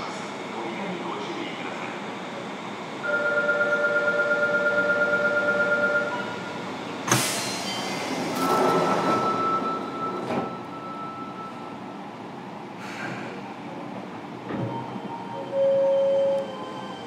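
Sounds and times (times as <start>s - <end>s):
rush of train noise: 0.0s - 3.2s, 5.9s - 17.0s
sliding doors shutting: 7.1s - 10.7s.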